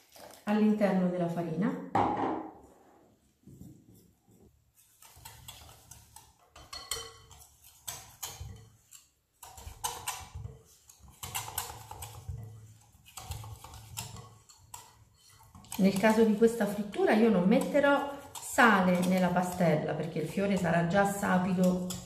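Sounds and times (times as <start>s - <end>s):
whisk clicking against glass bowl: 5.0s - 22.0s.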